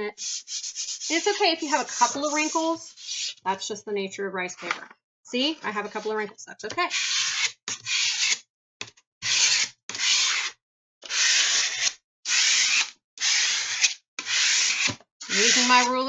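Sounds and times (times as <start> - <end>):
ruler scraping on paper: 0.2 - 3.4, 5.7 - 6.2, 6.9 - 8.4, 9.2 - 16.0.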